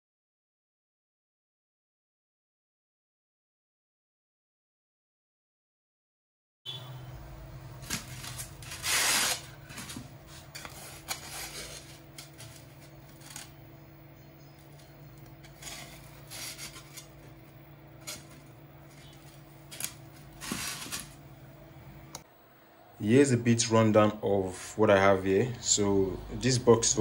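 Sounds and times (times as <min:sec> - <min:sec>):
steady low hum: 0:06.8 - 0:27.0
foam rubbing and scraping: 0:07.8 - 0:13.7, 0:14.6 - 0:21.2.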